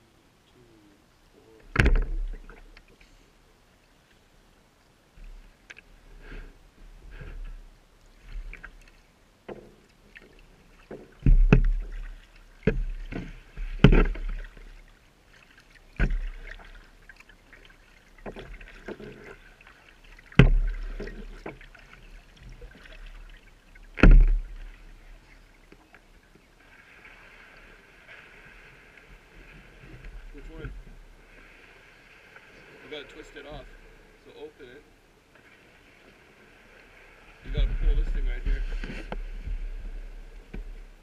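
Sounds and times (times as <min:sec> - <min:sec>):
kayak paddle splashes: 0:01.6 - 0:04.3, 0:05.1 - 0:41.0.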